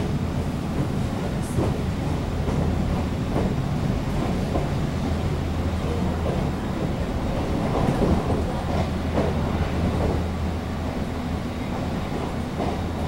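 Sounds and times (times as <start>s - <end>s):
electric train hum: 0.0s - 13.0s
wheels rumbling on track: 0.0s - 13.0s.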